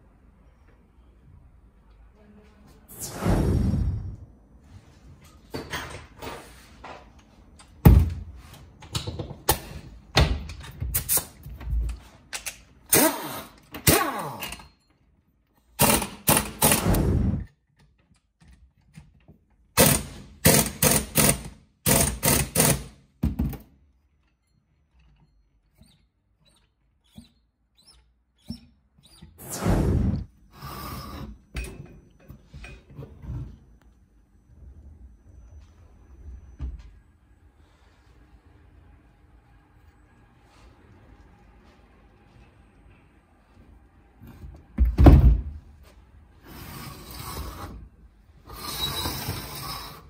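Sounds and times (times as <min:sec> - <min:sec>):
impact wrench hammering: 0:19.8 - 0:23.5.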